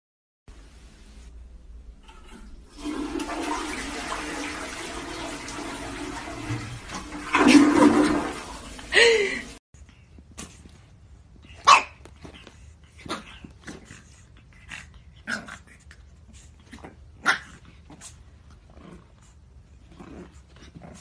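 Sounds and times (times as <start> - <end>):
puppy barking: 11.6 - 12.0.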